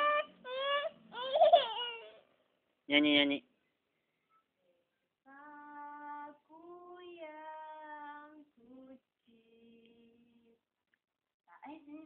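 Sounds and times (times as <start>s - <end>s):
small child singing long notes: 5.3s - 10.5s.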